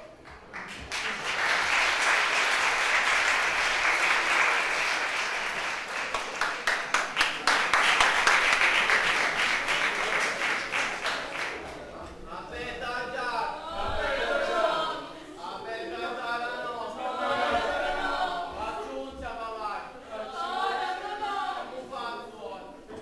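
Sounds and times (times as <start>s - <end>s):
audience applauding: 0.0s - 11.7s.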